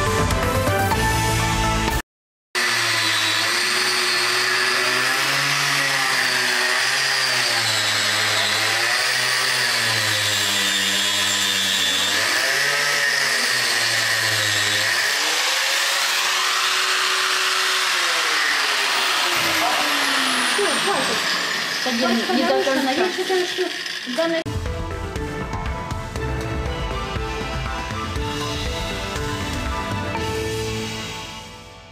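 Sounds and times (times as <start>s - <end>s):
angle grinder cutting paper: 2.6s - 24.5s.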